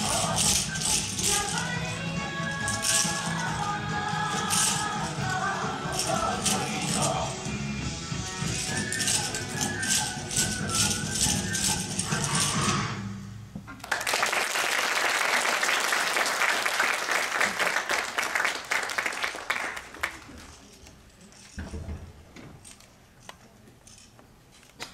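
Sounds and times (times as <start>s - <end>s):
audience applauding: 13.8s - 20.4s.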